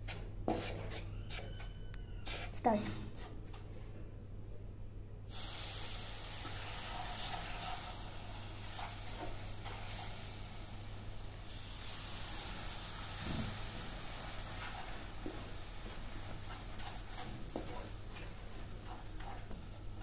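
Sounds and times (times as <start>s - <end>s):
spatula scraping a pan: 0.0s - 3.4s, 6.5s - 10.3s, 13.1s - 20.0s
low electrical hum: 1.9s - 20.0s
steady hiss: 5.3s - 17.2s.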